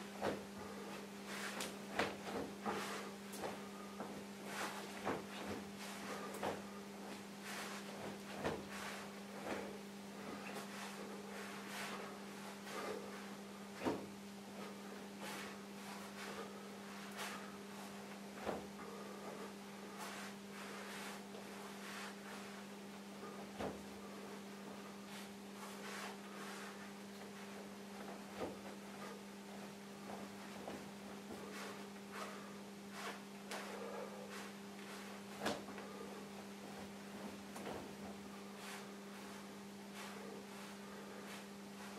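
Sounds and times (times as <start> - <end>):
clothing rustling: 0.0 - 41.9
electrical hum: 0.0 - 41.9
thumps of feet: 0.2 - 11.0, 13.8 - 14.2, 18.4 - 18.8, 23.3 - 24.0, 28.0 - 29.1, 30.0 - 31.9, 34.9 - 39.3.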